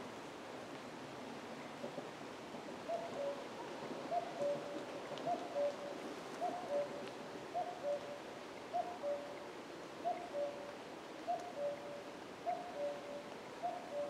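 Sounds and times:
cuckoo calling: 2.9 - 3.5, 4.1 - 9.4, 10.0 - 14.0.

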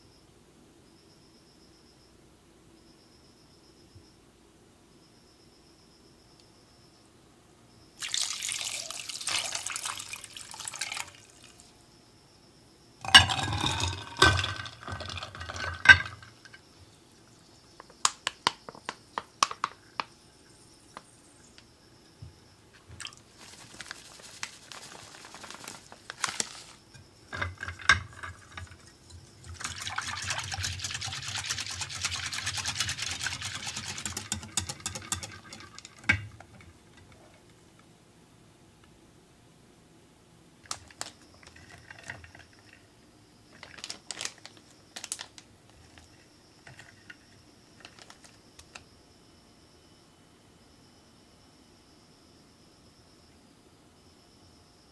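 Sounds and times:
cream being poured: 8.0 - 11.6, 13.0 - 16.2, 28.0 - 36.2
water poured over ice: 8.0 - 11.6, 13.0 - 16.2, 28.1 - 36.1
ice clinking against glass: 13.0 - 16.5, 26.9 - 37.1, 40.8 - 42.8
whisk beating in glass bowl: 28.1 - 36.2.

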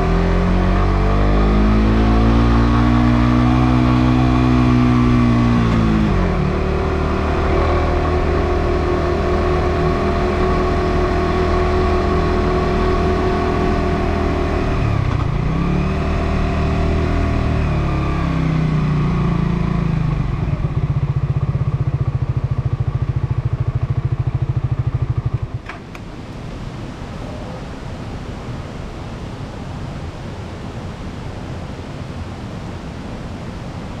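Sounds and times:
motorcycle engine idling: 20.5 - 25.7.

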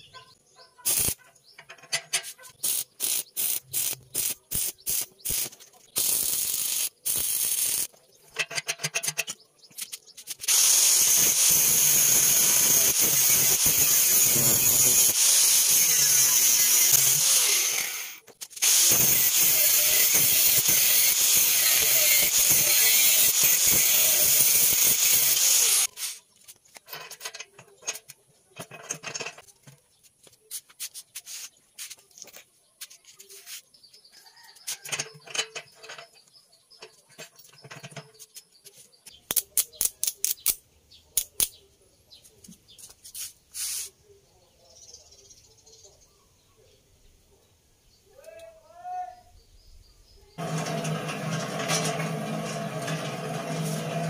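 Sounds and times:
angle grinder grinding steel: 10.5 - 25.9, 50.4 - 54.0.

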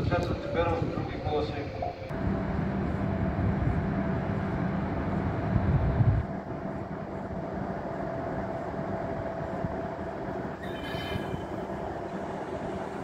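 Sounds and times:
locomotive rumbling: 0.0 - 13.0
high wheel squeal: 10.5 - 12.8.

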